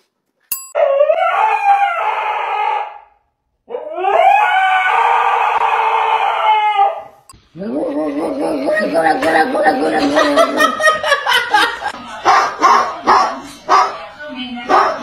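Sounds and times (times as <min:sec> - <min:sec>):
dog howling: 0:03.7 - 0:10.9.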